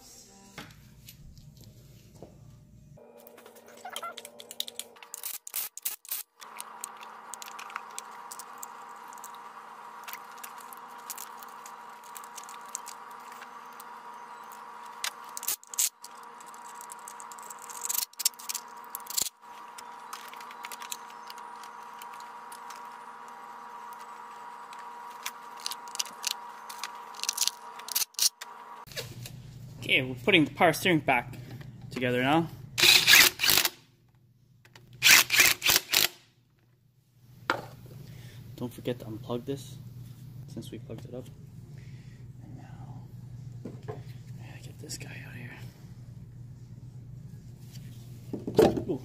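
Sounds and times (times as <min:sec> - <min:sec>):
faint steady hum: 0:36.4 - 0:49.0.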